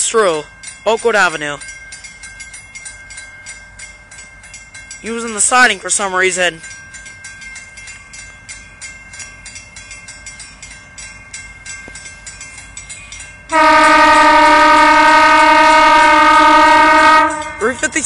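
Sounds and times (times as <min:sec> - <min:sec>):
crossing bell ringing: 0:00.0 - 0:18.0
locomotive horn blast: 0:13.5 - 0:17.8.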